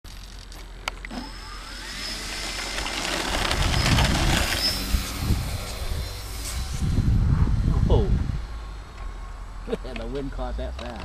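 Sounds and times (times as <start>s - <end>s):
model airplane motor whine: 0.2s - 9.3s
wind on microphone: 3.2s - 9.0s.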